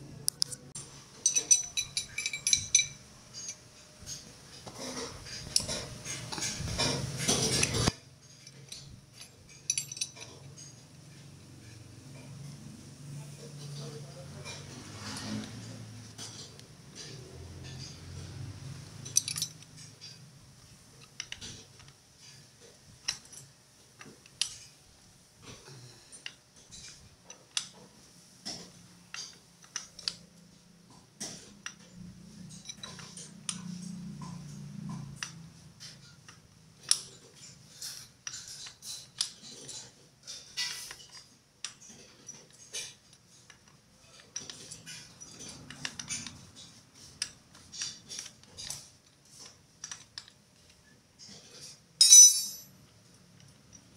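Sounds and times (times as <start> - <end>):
metallic clinks of hand tools: 1.2 - 4.2, 5.5 - 10.8, 19.0 - 20.2, 52.0 - 52.7.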